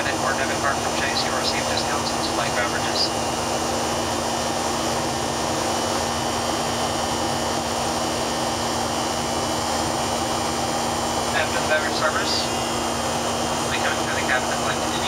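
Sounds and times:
jet engines droning: 0.0s - 15.0s
steady low hum: 0.0s - 15.0s.

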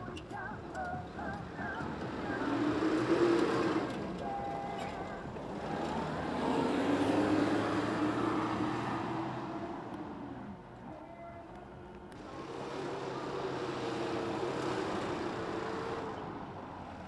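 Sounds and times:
suv engine revving hard: 2.4s - 4.0s, 5.6s - 9.4s.

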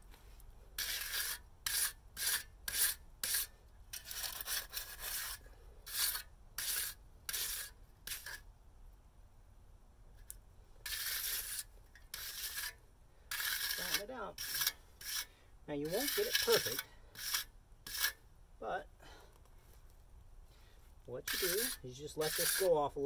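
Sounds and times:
trowel scraping wet concrete: 0.8s - 8.4s, 10.8s - 18.2s, 21.2s - 23.0s.

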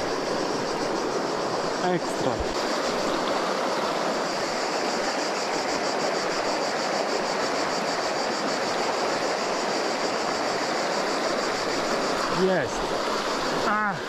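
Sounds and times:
river water rushing: 0.0s - 14.0s.

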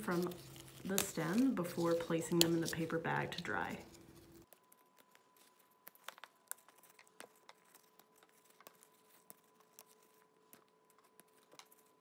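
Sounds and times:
leaves snapping and tearing: 0.0s - 2.9s.

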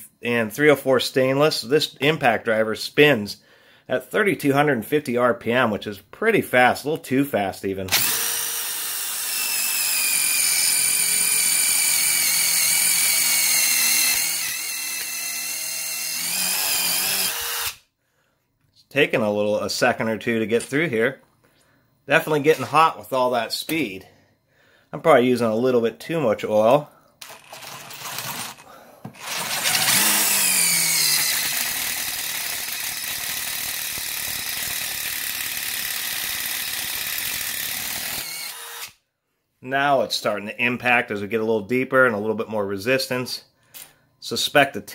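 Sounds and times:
impact driver motor whine: 7.9s - 17.8s, 29.2s - 38.9s.

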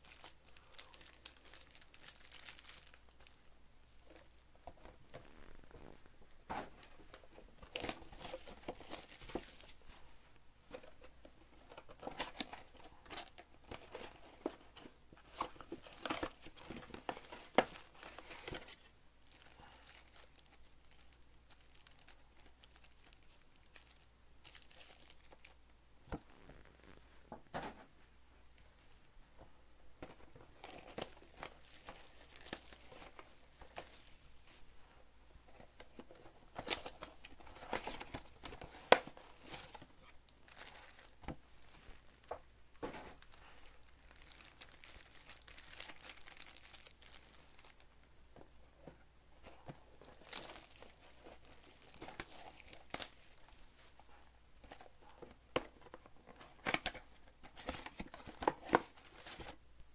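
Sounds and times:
foil packs crinkling: 0.0s - 3.4s, 15.3s - 25.6s, 30.5s - 34.2s, 36.6s - 41.2s, 43.2s - 47.9s, 50.1s - 53.4s.

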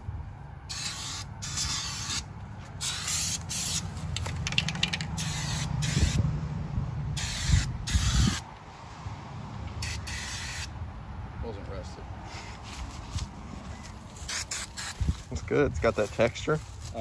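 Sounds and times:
spray paint can hissing: 0.7s - 6.2s, 7.2s - 8.4s, 9.8s - 10.7s, 14.2s - 15.1s
taps on spray nozzle: 4.2s - 5.1s.

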